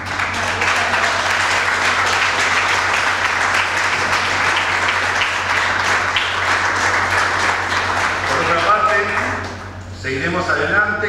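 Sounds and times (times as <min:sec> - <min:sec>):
audience applause: 0:00.0 - 0:09.8.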